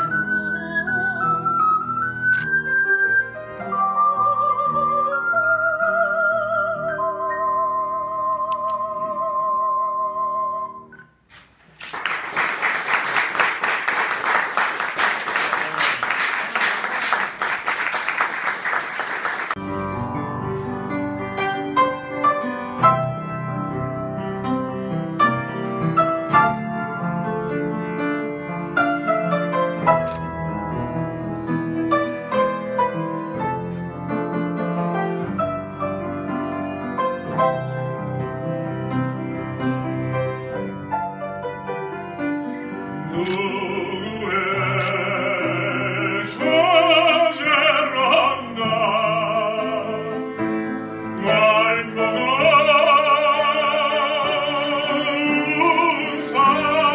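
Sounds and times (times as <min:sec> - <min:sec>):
piano playing: 0:00.0 - 0:11.3, 0:17.3 - 0:56.9
audience applauding: 0:11.7 - 0:19.6.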